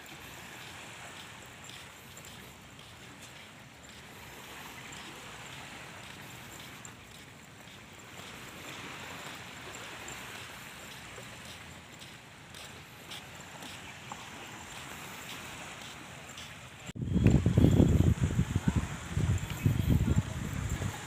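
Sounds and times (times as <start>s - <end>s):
small waves washing on shore: 0.0s - 21.0s
wind rumble on microphone: 16.9s - 21.0s.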